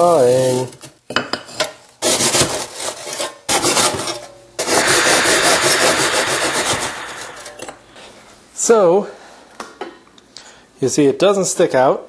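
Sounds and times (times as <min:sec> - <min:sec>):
hand saw cutting brick: 0:02.0 - 0:04.0.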